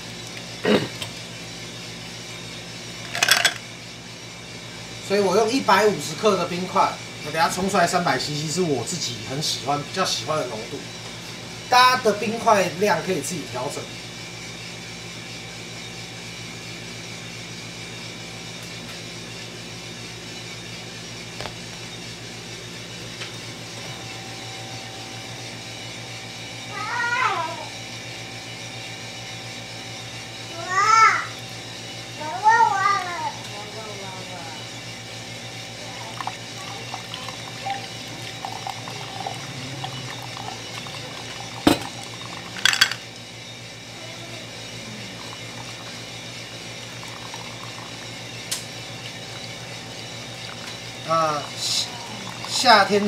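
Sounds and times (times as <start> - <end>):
coffee roaster humming: 0.0 - 53.0
water pouring onto coffee grounds: 36.1 - 42.8, 45.2 - 48.2, 50.2 - 53.0
kettle knocking on table: 41.7 - 42.0.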